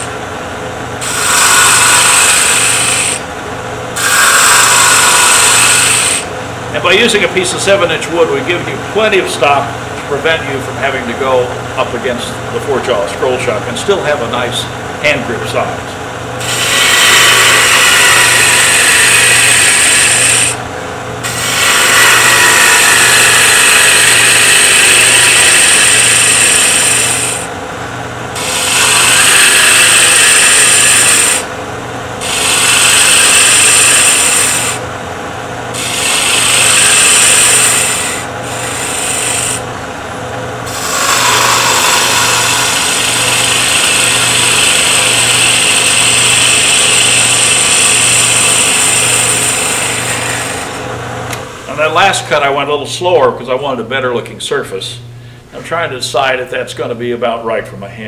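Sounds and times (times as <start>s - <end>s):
lathe humming: 0.0s - 53.7s
gouge rasping on wood lathe: 1.0s - 3.3s, 4.0s - 6.4s, 16.4s - 20.6s, 21.2s - 27.5s, 28.4s - 31.6s, 32.2s - 34.9s, 35.7s - 39.7s, 40.6s - 50.9s.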